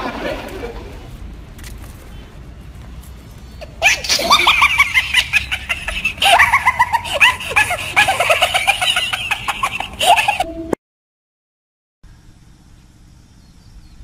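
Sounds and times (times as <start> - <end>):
high-pitched cackling laughter: 0.0 - 1.1, 3.6 - 10.7.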